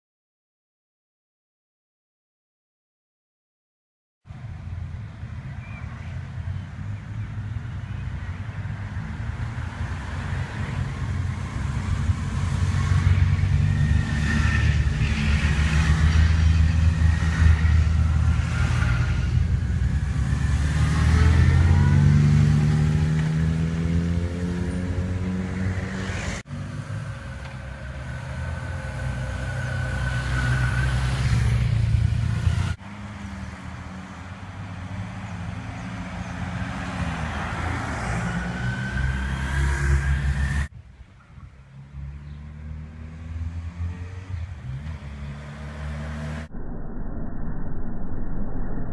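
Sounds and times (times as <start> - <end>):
motorcycles riding past: 6.0 - 40.7.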